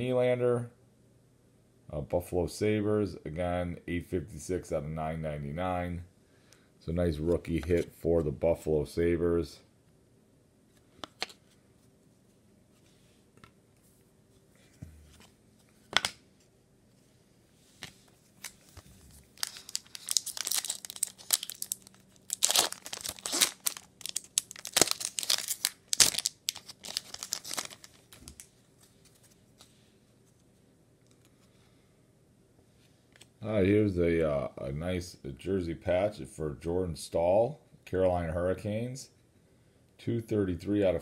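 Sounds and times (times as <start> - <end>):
foil wrapper tearing: 19.2 - 28.5.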